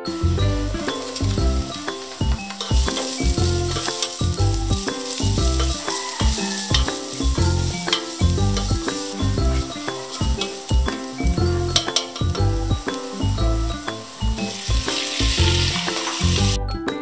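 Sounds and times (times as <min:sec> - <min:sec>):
background music with bass: 0:00.0 - 0:17.0
aromatics sizzling in oil: 0:00.1 - 0:16.6
spatula scraping a pot: 0:00.8 - 0:13.4.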